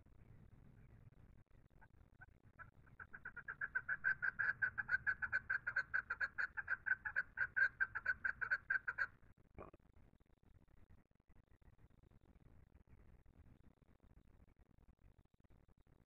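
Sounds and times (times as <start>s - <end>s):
partridge calling: 2.6s - 9.1s.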